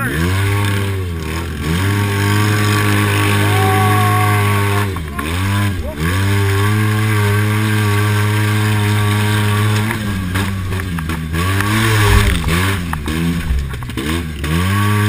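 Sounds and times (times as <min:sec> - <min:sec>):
engine revving hard: 0:00.0 - 0:15.0
sharp knocks over rough ground: 0:04.9 - 0:14.4.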